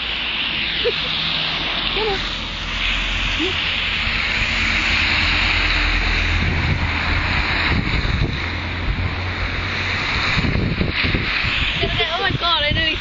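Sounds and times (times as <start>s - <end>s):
traffic on wet road: 0.0s - 13.0s
wind rumbling on microphone: 0.0s - 13.0s.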